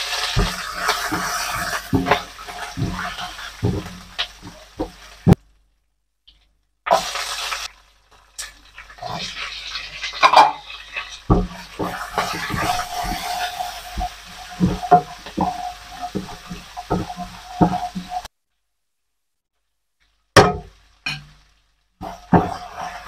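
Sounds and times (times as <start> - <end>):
spatula scraping a wok: 0.0 - 5.4, 8.4 - 18.3, 22.0 - 23.0
oil sizzling in a wok: 0.0 - 5.7, 6.4 - 18.3, 20.0 - 23.0.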